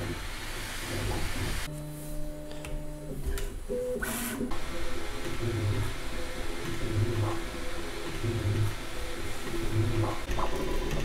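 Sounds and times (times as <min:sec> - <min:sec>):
printer stepper motors whining: 0:03.7 - 0:11.0.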